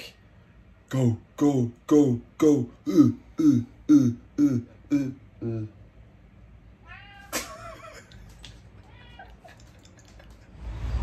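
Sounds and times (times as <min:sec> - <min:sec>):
cat meowing: 0:06.8 - 0:07.6, 0:08.8 - 0:09.5.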